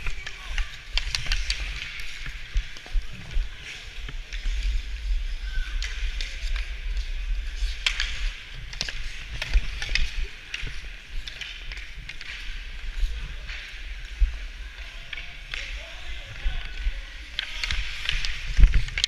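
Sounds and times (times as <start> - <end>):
hockey sticks and puck clacking: 0.0 - 19.0.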